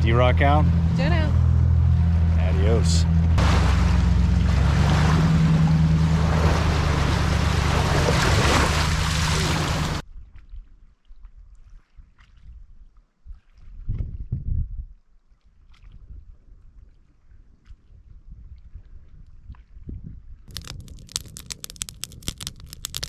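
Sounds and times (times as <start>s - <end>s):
motorboat engine hum: 0.0s - 10.0s
wind and water rushing: 3.4s - 10.0s.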